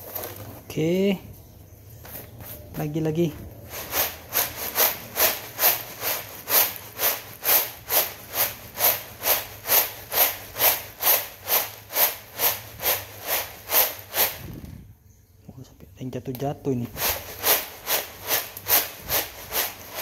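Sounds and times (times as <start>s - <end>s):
coffee beans rattling on tray: 3.7s - 14.5s, 16.8s - 20.0s.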